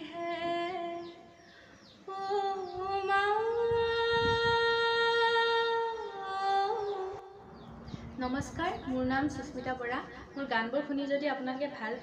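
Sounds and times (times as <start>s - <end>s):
woman singing unaccompanied: 0.0s - 1.4s, 2.0s - 7.4s.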